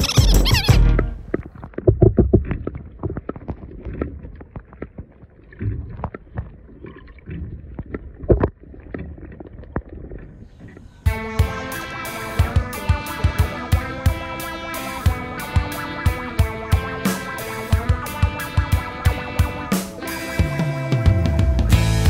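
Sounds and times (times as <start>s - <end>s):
underwater sloshing and gurgling: 1.2s - 19.7s
background music: 11.0s - 22.0s.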